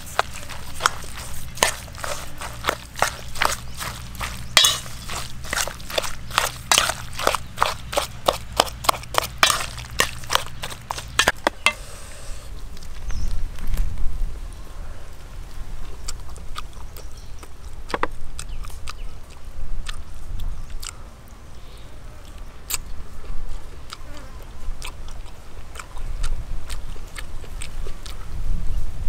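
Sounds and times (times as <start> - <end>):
metal spoon clinking in steel bowl: 4.6 - 5.2, 9.4 - 10.2.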